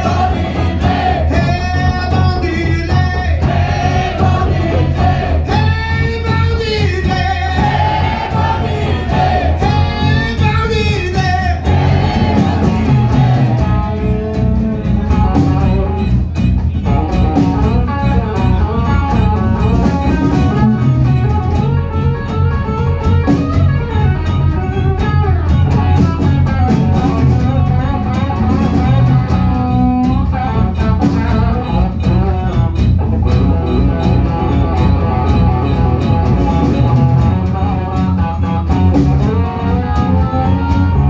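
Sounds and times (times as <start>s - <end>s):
bass guitar: 0.0s - 41.0s
drum kit: 0.0s - 41.0s
electric guitar bending notes: 0.0s - 41.0s.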